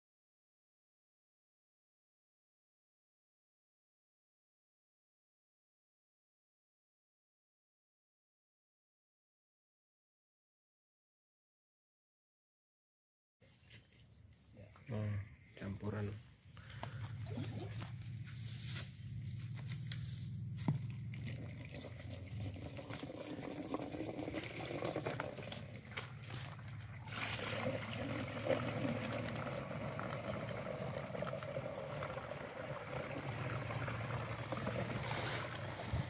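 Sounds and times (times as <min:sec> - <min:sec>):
liquid pouring into tank: 0:20.6 - 0:36.0.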